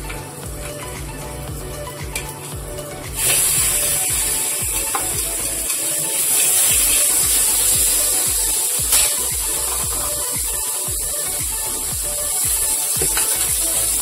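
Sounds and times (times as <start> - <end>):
meat sizzling in a wok: 0.3 - 14.0.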